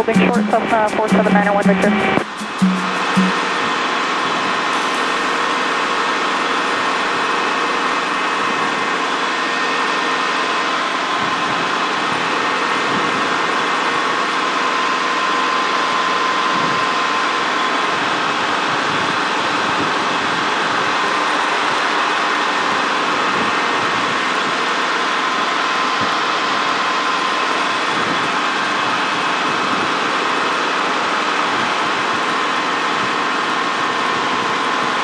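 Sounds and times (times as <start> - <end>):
high whine: 0.0 - 10.5
helicopter engine and rotor drone: 0.0 - 35.0.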